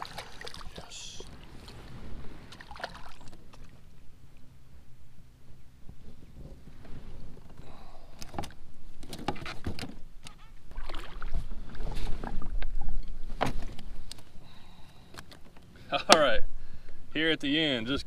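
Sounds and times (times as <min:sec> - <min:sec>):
fish splashing at the surface: 0:00.0 - 0:00.9
water sloshing: 0:00.0 - 0:03.9, 0:10.6 - 0:13.0
knocks and clicks against hull: 0:08.2 - 0:10.4.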